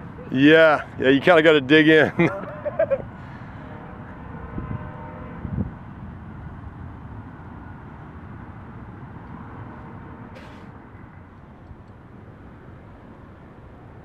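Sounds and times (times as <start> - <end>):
wind blowing on microphone: 4.4 - 5.9.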